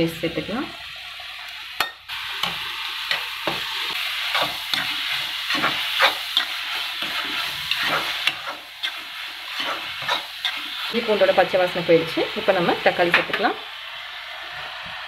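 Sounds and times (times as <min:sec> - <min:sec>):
onions sizzling in hot oil: 0:00.0 - 0:15.0
ladle scraping against pan: 0:02.4 - 0:11.0.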